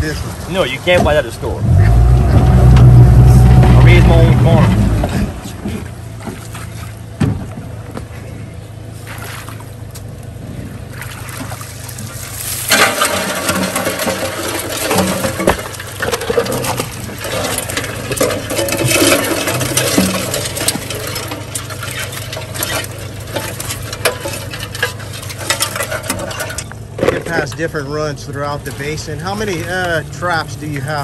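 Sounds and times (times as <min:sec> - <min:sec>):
outboard motor idling: 0:00.0 - 0:31.0
crawfish rattling on metal tray: 0:12.4 - 0:27.4.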